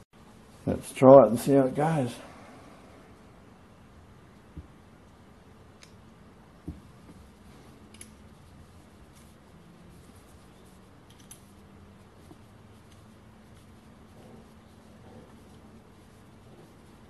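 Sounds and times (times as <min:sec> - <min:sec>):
faint steady hum: 0:00.2 - 0:17.0.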